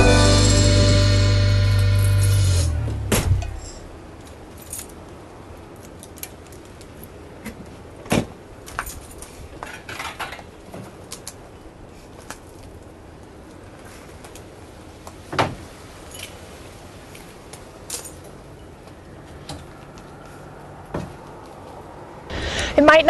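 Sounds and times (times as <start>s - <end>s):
background music: 0.0s - 3.6s.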